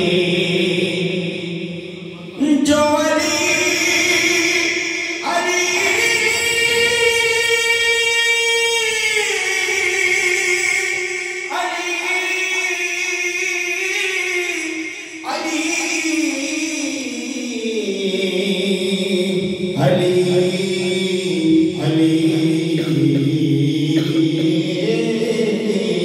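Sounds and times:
man singing unaccompanied: 0.0s - 26.0s.

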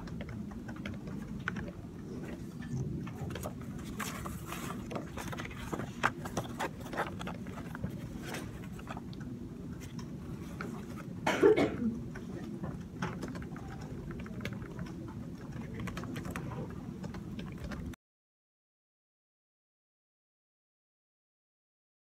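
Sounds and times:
room hum: 0.0s - 18.0s
paper rustling: 1.4s - 9.1s.

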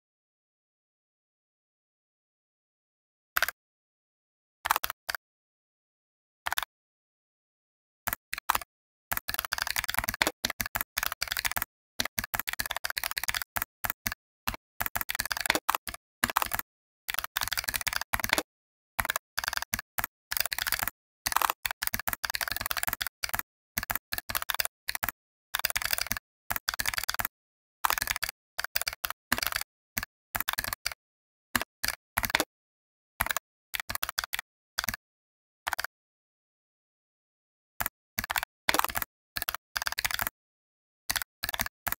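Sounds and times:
computer keyboard typing: 4.7s - 5.2s, 8.1s - 31.0s, 31.6s - 32.5s, 33.2s - 35.0s, 35.7s - 35.9s, 37.8s - 40.4s, 41.1s - 41.9s.

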